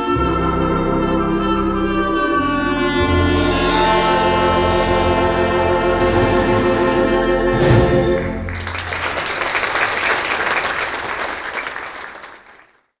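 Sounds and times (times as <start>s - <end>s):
jazz band and theatre organ chord: 0.0s - 12.2s
audience applause: 8.4s - 12.9s.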